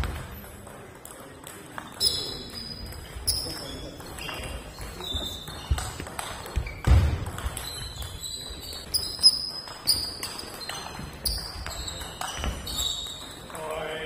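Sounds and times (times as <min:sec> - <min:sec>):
table tennis balls clicking: 0:00.0 - 0:13.9.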